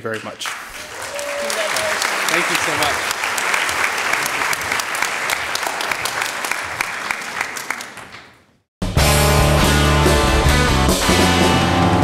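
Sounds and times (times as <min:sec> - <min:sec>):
audience applauding: 0:00.0 - 0:08.6
rock music with guitar: 0:08.8 - 0:12.0.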